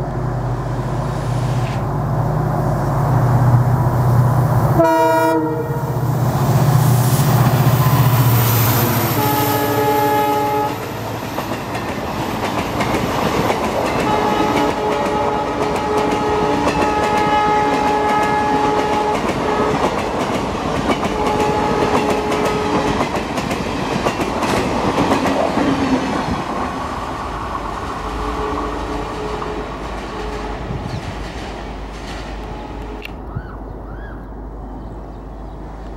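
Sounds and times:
locomotive horn blasts: 4.8s - 6.0s, 8.8s - 11.0s, 14.0s - 19.9s, 21.1s - 23.0s, 28.0s - 30.9s, 32.4s - 33.2s
train wheels clickety-clack: 10.6s - 33.2s.

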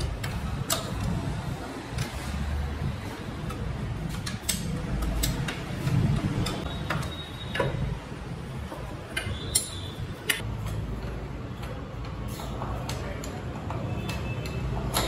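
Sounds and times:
spanner clicking on metal nut: 3.4s - 7.8s.

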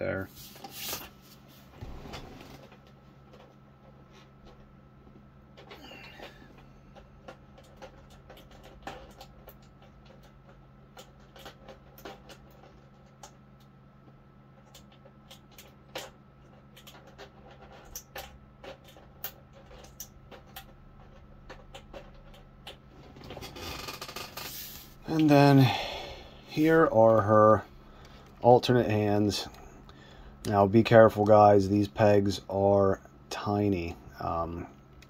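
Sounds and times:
steady low hum: 0.0s - 35.0s
plastic parts clicking and tapping: 5.6s - 23.6s.

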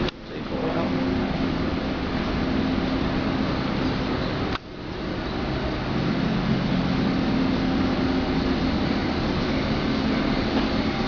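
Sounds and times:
low drone: 0.0s - 11.0s
metro train car hum and rumble: 0.0s - 11.0s.

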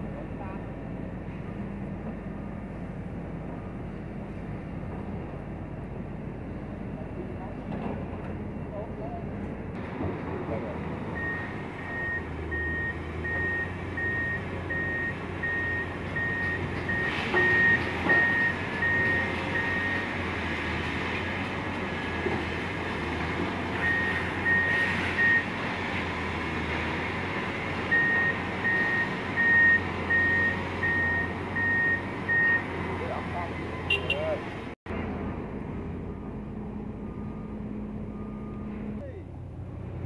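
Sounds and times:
excavator diesel engine running: 0.0s - 40.0s
electronic warning beep: 11.1s - 20.1s, 23.8s - 25.5s, 27.9s - 32.7s.

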